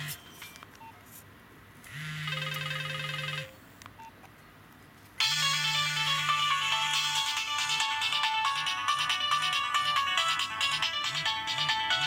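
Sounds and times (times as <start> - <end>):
phone ringtone melodies: 2.0 - 3.6, 5.2 - 12.0.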